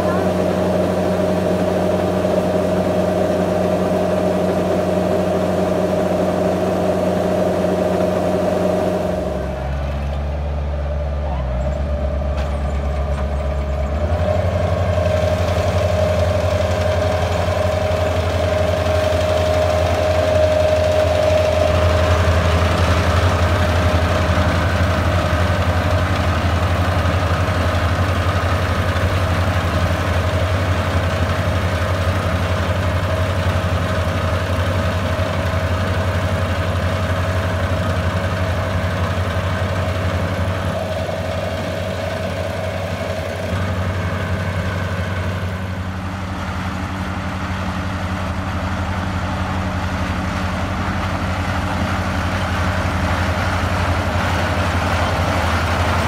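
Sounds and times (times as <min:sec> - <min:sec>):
high machinery whine: 0:00.0 - 0:56.0
low engine drone: 0:00.0 - 0:56.0.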